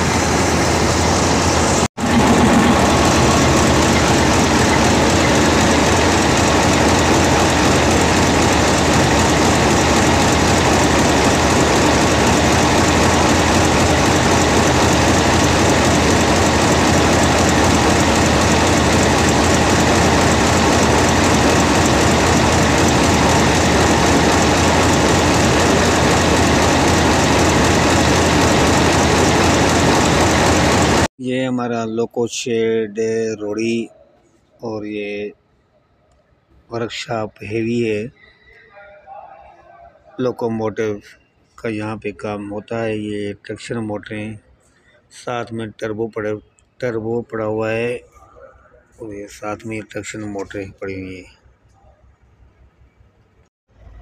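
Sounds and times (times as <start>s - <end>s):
locomotive engine running: 0.0s - 31.1s.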